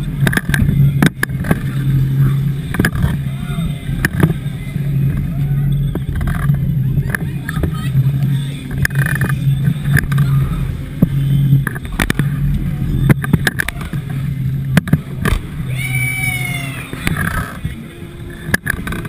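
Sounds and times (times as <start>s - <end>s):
ride machinery humming: 0.0s - 19.0s
person screaming: 15.7s - 16.9s.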